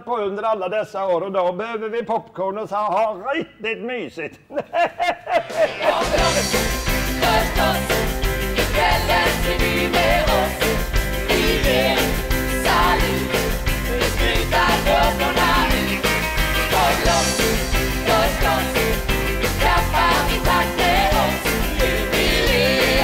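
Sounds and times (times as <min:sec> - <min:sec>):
drums: 0:05.3 - 0:23.0
electric guitar: 0:05.4 - 0:23.0.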